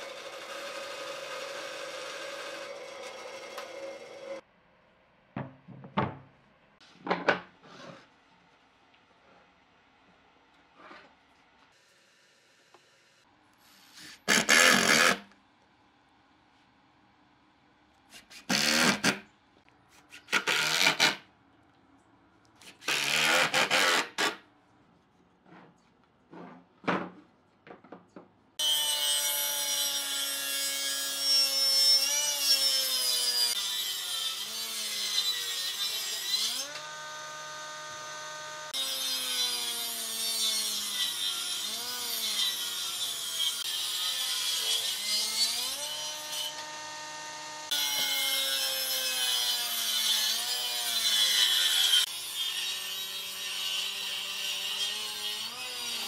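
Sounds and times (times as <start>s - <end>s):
circular saw whine: 36.7s - 38.7s.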